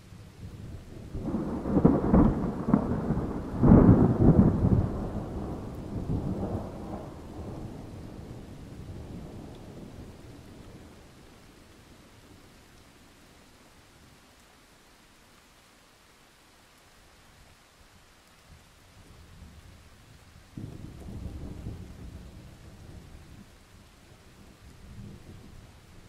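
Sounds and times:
thunder rumbling and cracking: 1.0 - 11.0, 20.6 - 23.5.

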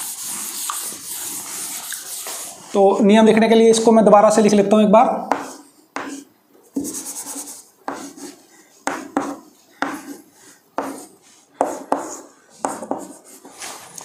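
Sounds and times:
chalk tapping and scraping on blackboard: 0.0 - 2.6, 5.3 - 13.8.

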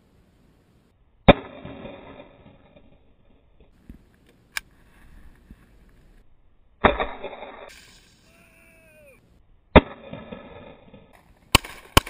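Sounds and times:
gunshot echo: 1.3 - 2.9, 6.8 - 8.3, 9.7 - 12.0.

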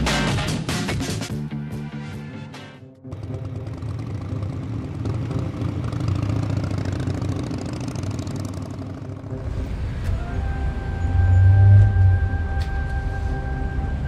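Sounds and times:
motorcycle engine passing by: 3.1 - 10.0.

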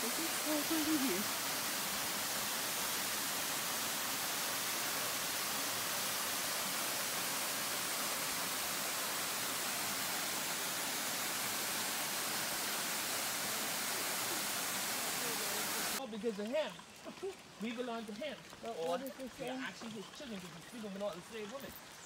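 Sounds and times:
waterfall splashing into pool: 0.0 - 16.1.

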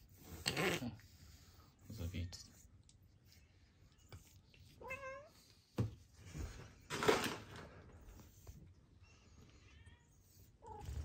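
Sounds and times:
cat meowing: 4.8 - 5.4.

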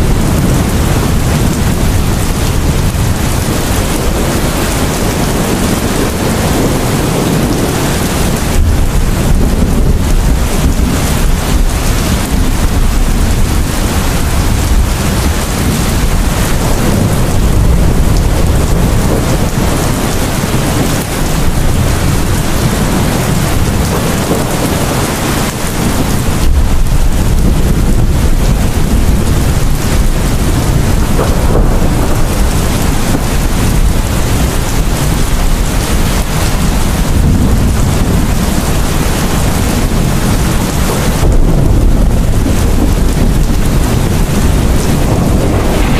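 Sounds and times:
heavy rain pouring: 0.0 - 45.9
rumble of thunder: 0.0 - 45.9.

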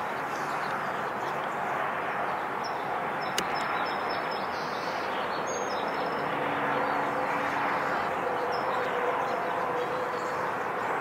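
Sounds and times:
steady rushing background noise: 0.0 - 11.0
small birds chirping: 2.6 - 7.1.

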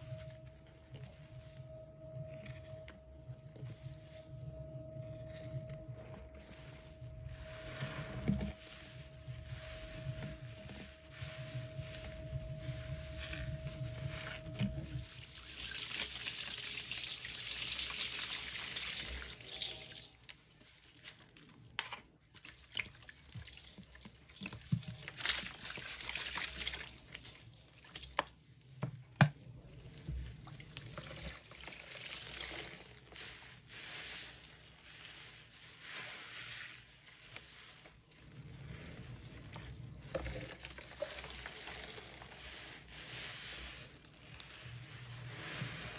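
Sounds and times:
water pouring and trickling: 7.3 - 21.0, 22.4 - 28.3, 29.8 - 45.9.

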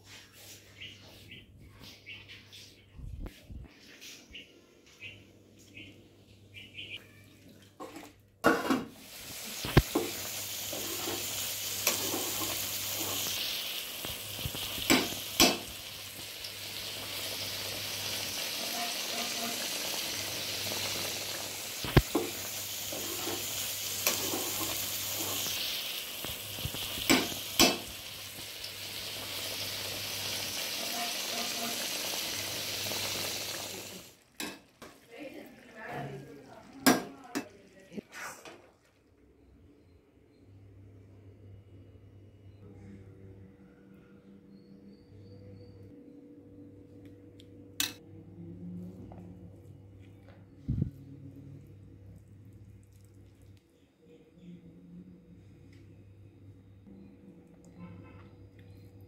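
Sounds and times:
food sizzling and bubbling in pot: 7.8 - 39.5.

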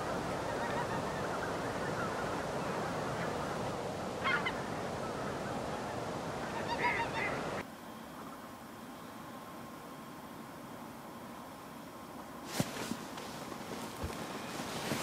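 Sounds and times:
waterfowl chattering: 0.0 - 8.5.

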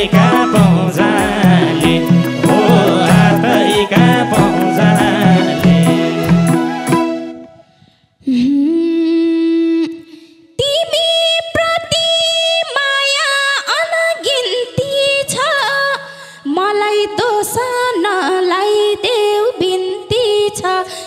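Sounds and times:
band music: 0.0 - 7.6.

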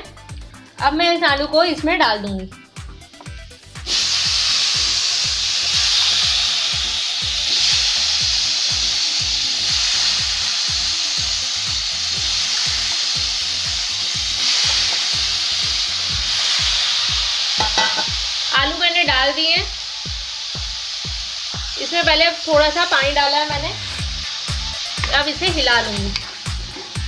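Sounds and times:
regular low beat: 0.0 - 3.9, 18.1 - 27.0
potatoes sizzling in oil: 0.8 - 27.0.

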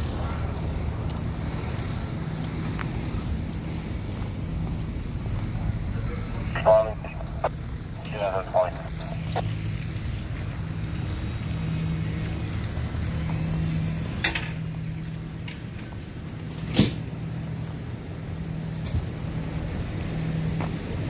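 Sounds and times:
diesel engine idling: 3.8 - 10.0.

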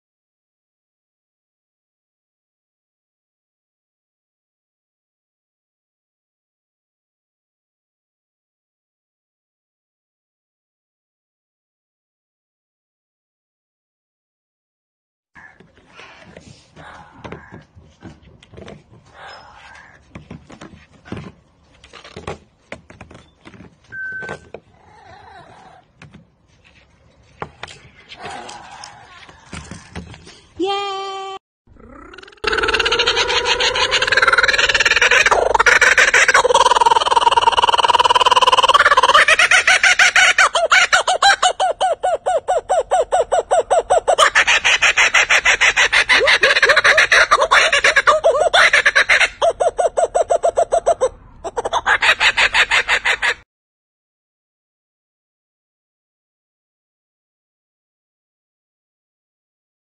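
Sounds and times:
kookaburra calling: 31.9 - 53.4.

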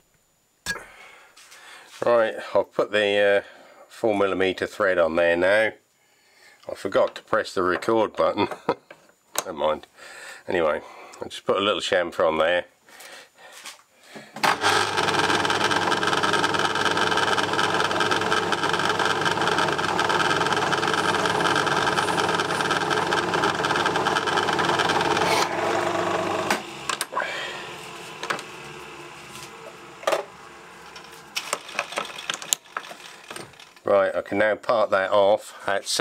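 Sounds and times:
metal lathe humming: 14.5 - 33.6.

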